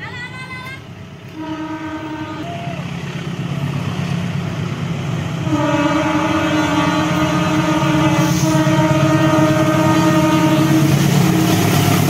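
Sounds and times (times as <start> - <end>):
locomotive engine rumble: 0.0 - 12.0
locomotive horn blasts: 1.3 - 2.5, 5.4 - 11.8.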